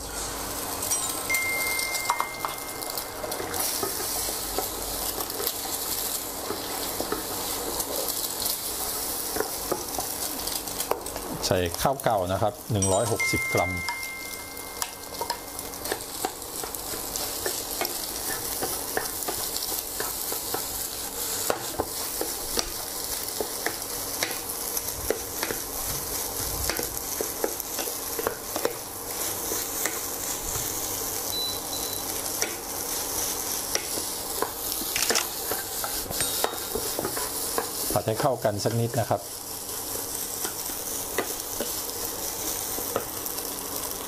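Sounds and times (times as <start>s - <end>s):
food sizzling in hot oil: 0.0s - 44.0s
wooden spatula scraping wok: 32.4s - 38.9s.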